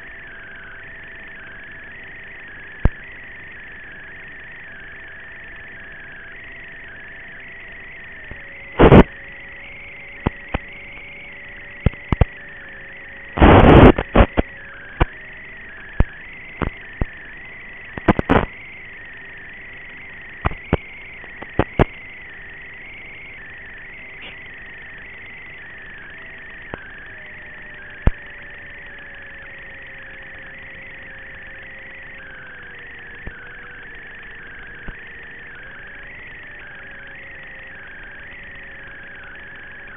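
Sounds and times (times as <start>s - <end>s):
faint motor whine: 0.0s - 39.9s
sharp crackling pops: 2.8s - 3.0s, 8.2s - 9.2s, 10.2s - 11.1s, 11.8s - 12.4s, 13.3s - 15.2s, 15.8s - 17.2s, 17.9s - 18.6s, 20.4s - 22.0s, 28.0s - 28.3s.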